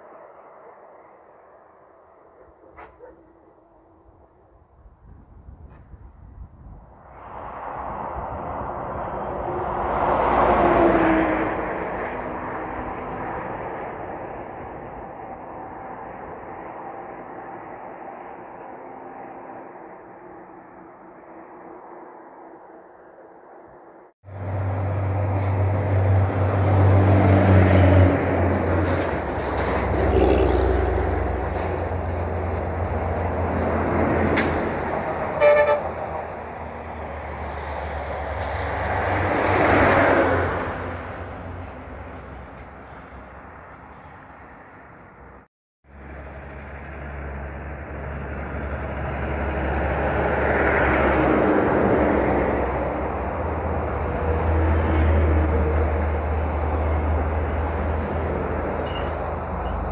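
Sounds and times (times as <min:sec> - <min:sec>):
heavy diesel trucks driving past: 0:07.0 - 0:22.8, 0:24.3 - 0:59.9
truck horn toot: 0:35.4 - 0:36.0.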